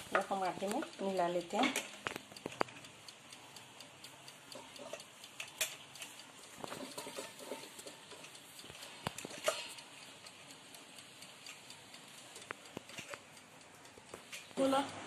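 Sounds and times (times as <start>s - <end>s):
light taps and scrapes: 6.6s - 9.7s.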